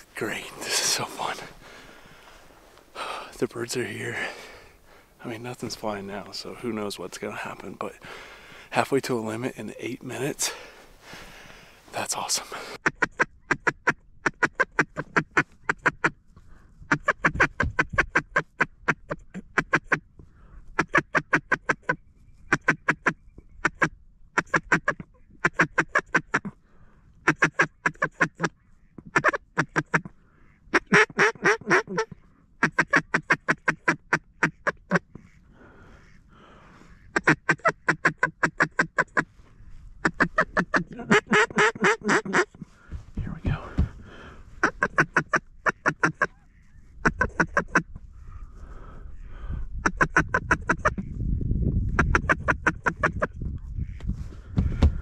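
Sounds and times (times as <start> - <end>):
duck quacking: 12.2 - 16.2, 16.9 - 20.0, 20.8 - 26.6, 27.2 - 28.5, 29.1 - 39.3, 40.0 - 42.6, 44.6 - 48.0, 49.8 - 51.1, 52.0 - 54.0.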